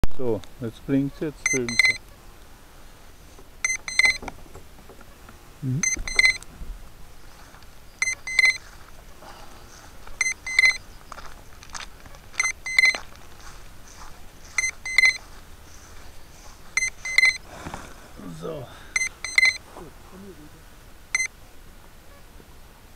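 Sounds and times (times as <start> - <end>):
short high electronic beeps: 1.4 - 2.0, 3.6 - 4.2, 5.8 - 6.4, 8.0 - 8.6, 10.2 - 10.8, 12.3 - 13.1, 14.5 - 15.3, 16.8 - 17.4, 19.0 - 19.6.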